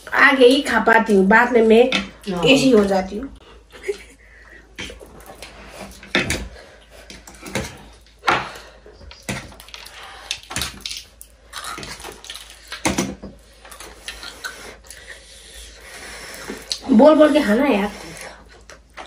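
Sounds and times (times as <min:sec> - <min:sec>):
chewing: 0:13.4 - 0:16.9
people slurping noodles: 0:13.8 - 0:18.7.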